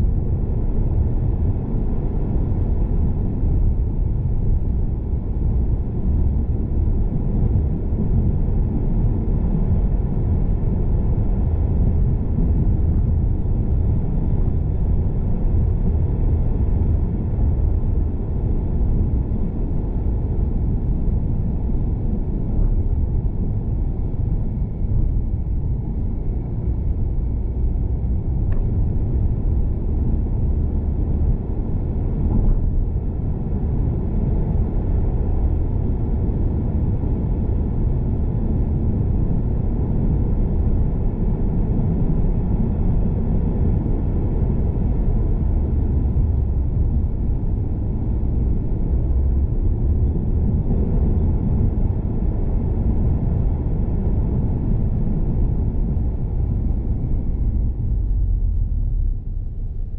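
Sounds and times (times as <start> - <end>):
car road and engine rumble: 0.0 - 59.9.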